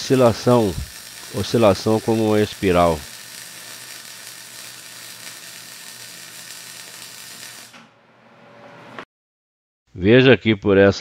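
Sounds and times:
welding arc crackling: 0.0 - 8.0.

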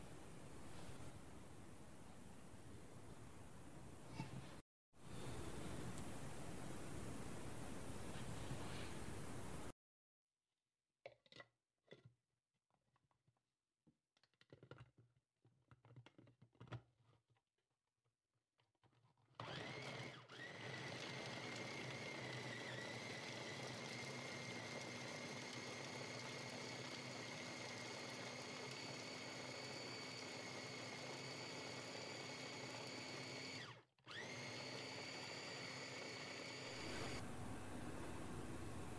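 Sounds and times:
food chopper motor whining: 19.4 - 38.9.

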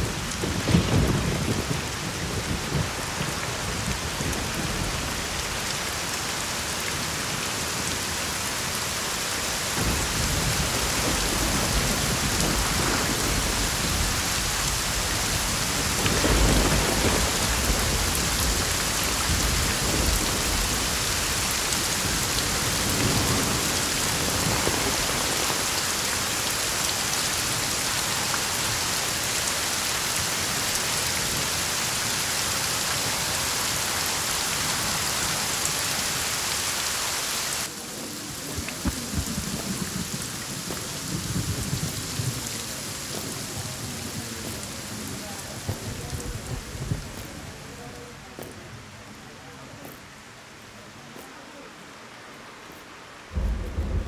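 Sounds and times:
low thunder rumbling: 0.0 - 5.7, 9.8 - 26.4, 38.0 - 47.2, 53.3 - 54.0
steady rain: 0.0 - 54.0.

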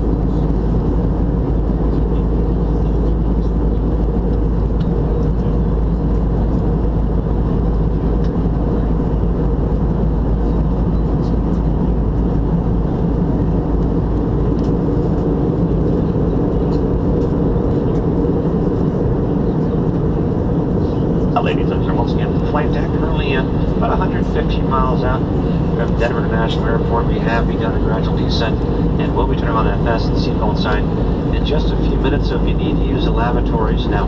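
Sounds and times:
airflow over fuselage: 0.0 - 34.0
jet engines rumbling: 0.0 - 34.0.

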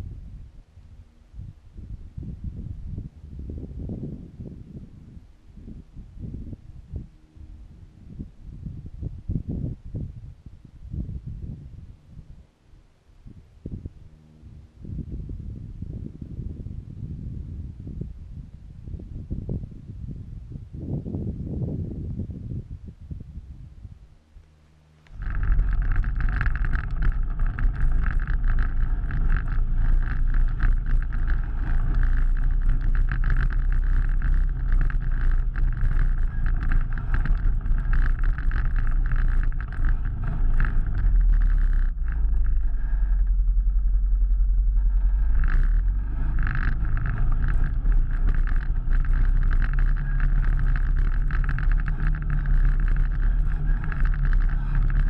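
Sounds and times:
atv engine droning: 24.9 - 55.0.

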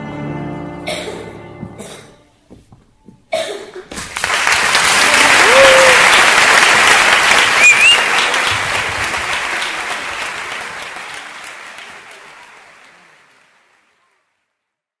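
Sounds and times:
audience applauding: 3.8 - 14.4.

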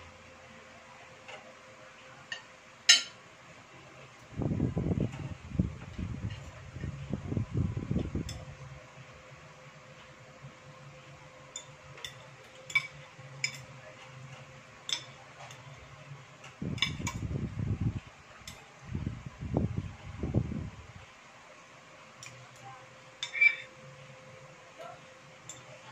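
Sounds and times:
steady low hum: 0.0 - 25.9
cutlery clinking on plates: 2.3 - 3.2, 11.5 - 13.7, 14.8 - 15.7, 23.2 - 23.7.

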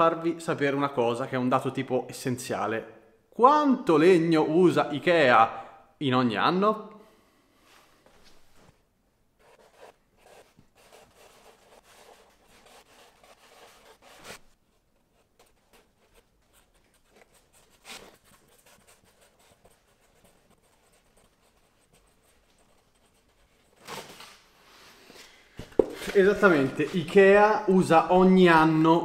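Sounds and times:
marker pen scratching cardboard: 9.4 - 24.0
cardboard rubbing: 9.4 - 24.4.

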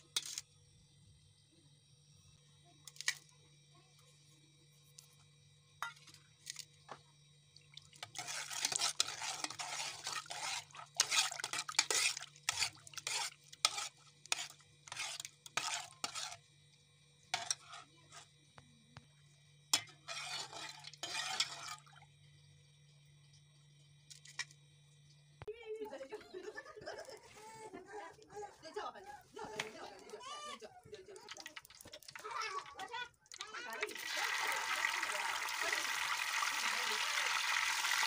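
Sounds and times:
metal spoon scraping steel bowl: 0.0 - 0.4, 8.0 - 16.4, 17.4 - 18.3, 19.8 - 21.9
faint low hum: 15.8 - 33.9.

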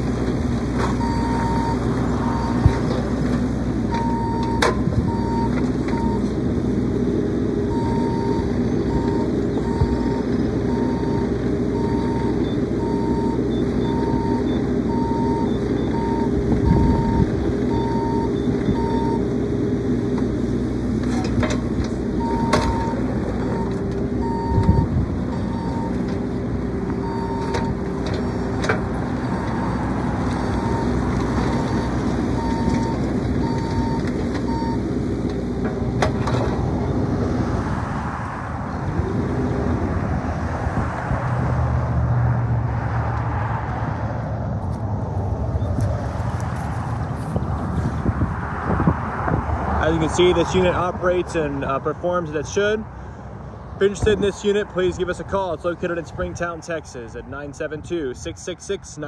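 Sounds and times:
excavator diesel engine running: 0.0 - 39.9
travel alarm beeping: 1.0 - 2.6, 4.0 - 6.2, 7.7 - 11.2, 11.8 - 19.2, 22.2 - 26.0, 27.0 - 27.6, 31.6 - 34.8.

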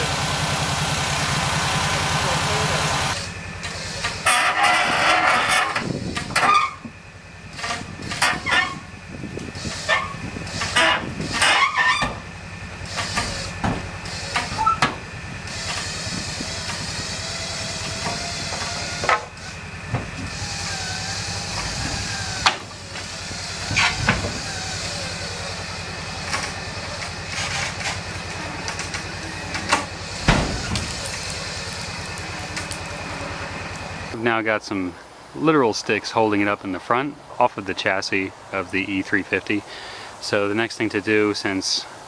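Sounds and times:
winch motor hum: 0.0 - 34.2
creaks and cracks of truck box: 3.6 - 7.0, 9.4 - 25.5, 26.2 - 33.9
heavy thud: 19.9 - 20.3, 29.7 - 31.0.

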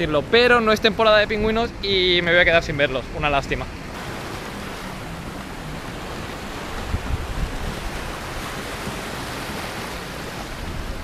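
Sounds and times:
wind on microphone: 3.8 - 11.0
waves washing over rocks: 3.9 - 11.0.

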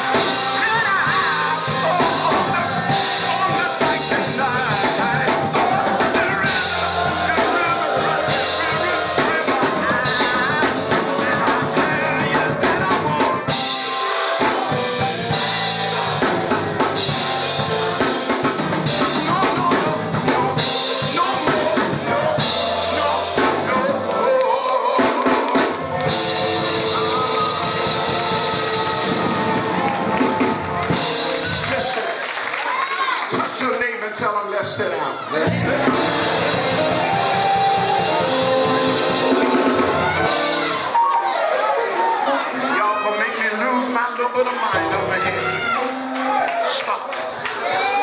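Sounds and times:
congregation clapping: 0.0 - 13.2, 21.1 - 34.8, 45.8 - 48.0
man singing into microphone: 0.0 - 13.8, 18.9 - 25.6
choir singing: 0.0 - 31.6, 35.3 - 42.3
drum kit: 0.0 - 32.0, 35.5 - 41.2
keyboard: 0.0 - 32.5, 35.3 - 48.0.

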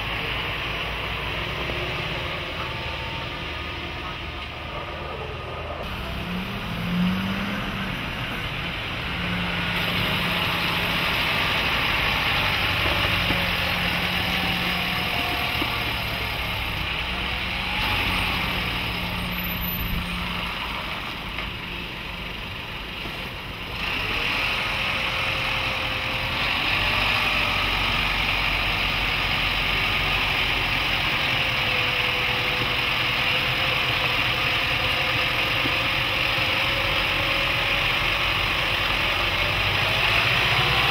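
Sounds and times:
diesel truck engine at low revs: 0.0 - 40.9.

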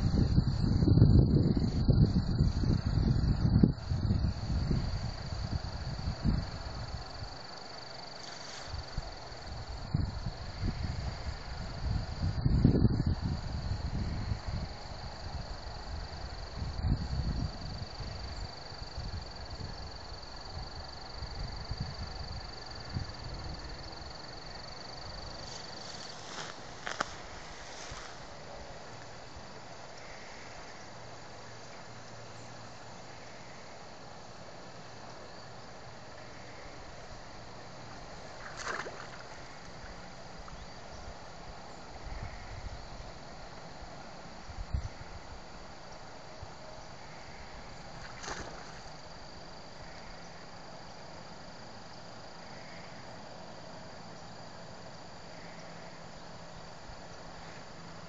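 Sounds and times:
steady hiss: 17.8 - 58.0.

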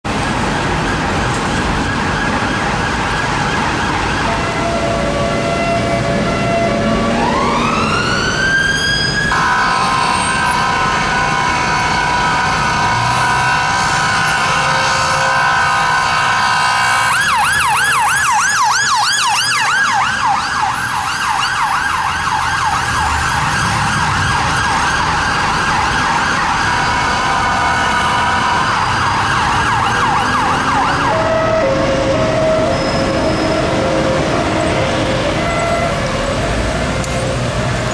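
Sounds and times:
traffic noise: 0.0 - 37.9
police siren: 0.1 - 37.9
horn blast: 9.3 - 17.1.

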